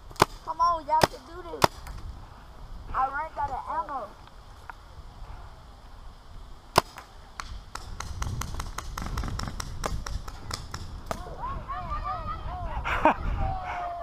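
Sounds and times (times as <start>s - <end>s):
paintball markers firing: 0.1s - 2.0s, 6.8s - 11.3s.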